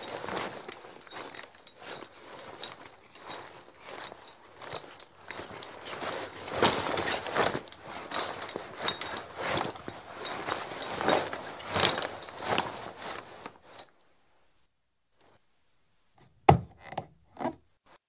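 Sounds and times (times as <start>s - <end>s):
metal fittings jingling: 0.0s - 13.2s
leather creaking: 0.0s - 13.5s.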